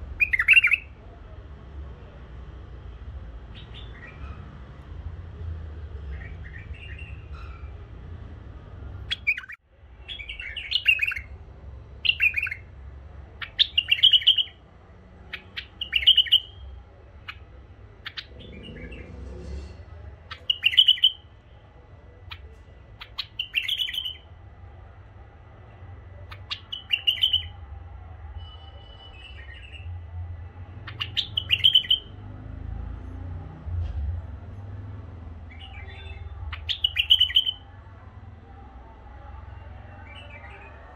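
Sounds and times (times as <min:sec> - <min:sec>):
bulbul singing warbled phrases: 0:00.1 - 0:01.0, 0:09.1 - 0:11.4, 0:12.0 - 0:12.7, 0:13.4 - 0:14.6, 0:15.3 - 0:19.0, 0:20.3 - 0:21.6, 0:22.2 - 0:24.3, 0:26.2 - 0:27.6, 0:30.8 - 0:32.1, 0:35.5 - 0:37.6
faint low hum: 0:09.8 - 0:40.9.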